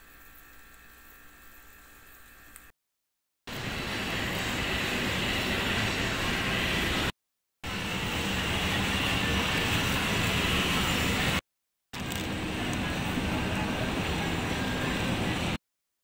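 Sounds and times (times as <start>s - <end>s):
supermarket ambience: 12.0s - 15.6s.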